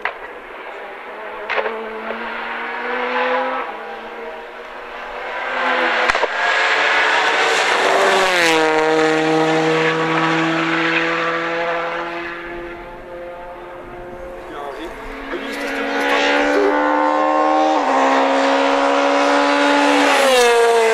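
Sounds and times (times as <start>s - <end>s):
sharp crack: 0.0s - 0.4s, 1.5s - 2.2s, 6.0s - 6.4s
rally car engine passing at speed: 0.0s - 20.9s.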